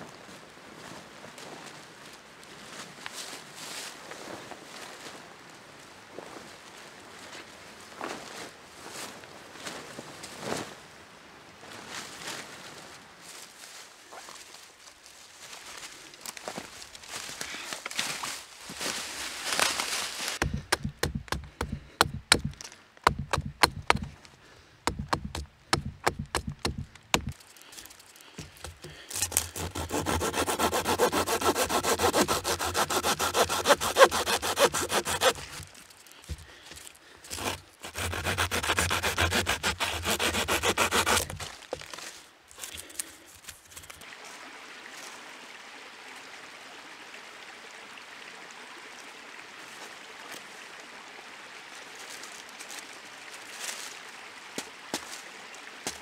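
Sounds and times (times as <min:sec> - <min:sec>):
saw cutting through wood: 0:20.4 - 0:24.1, 0:24.9 - 0:27.4, 0:28.6 - 0:35.7, 0:37.3 - 0:41.5
blade chopping into wood: 0:20.4 - 0:24.2, 0:24.9 - 0:27.4, 0:28.4 - 0:35.7, 0:37.3 - 0:41.9.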